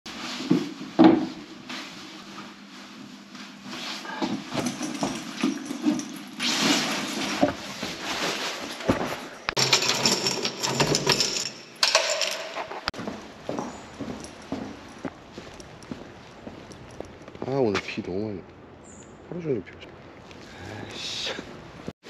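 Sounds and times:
fabric and bag rustling: 0.1 - 9.5.

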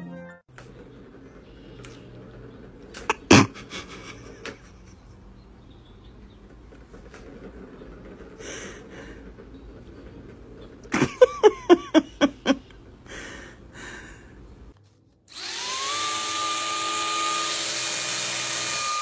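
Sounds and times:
small electric motor whining: 15.3 - 19.0.

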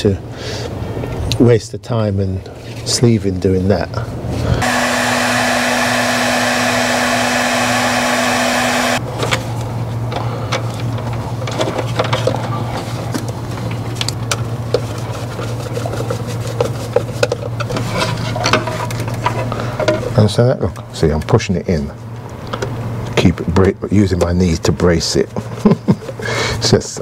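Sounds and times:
heat gun blowing with whine: 4.6 - 9.0.

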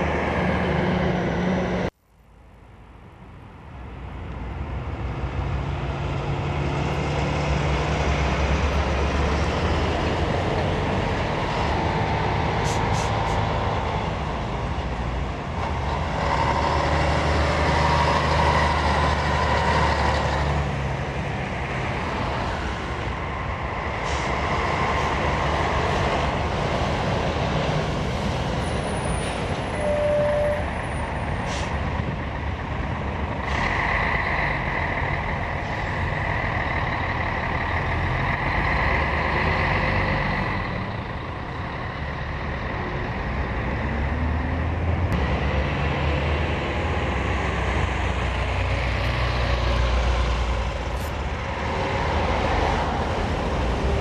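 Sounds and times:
lorries passing at speed: 0.0 - 2.0, 2.8 - 54.0
high whistle: 29.8 - 30.6.

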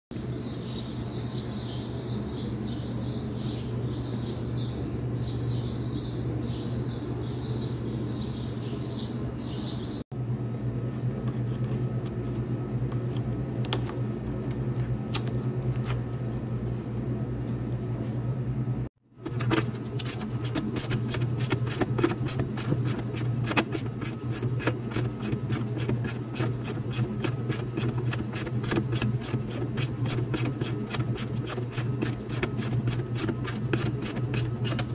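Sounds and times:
birds chirping: 0.1 - 10.0
low mechanical hum: 0.1 - 34.9.

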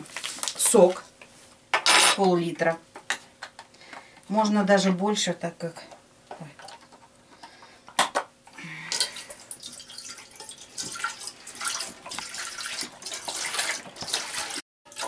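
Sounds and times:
juice pouring into a pot: 8.8 - 15.0.

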